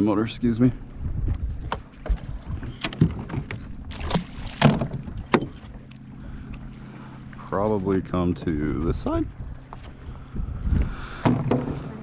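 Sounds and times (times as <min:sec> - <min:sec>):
steady low hum: 0:00.0 - 0:12.0
trolling motor mount clanks: 0:01.3 - 0:06.0.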